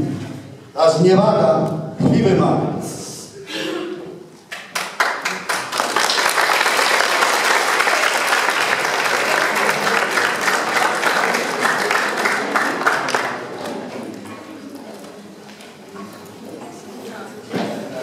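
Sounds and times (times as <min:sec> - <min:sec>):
audience applauding: 0:04.6 - 0:13.8.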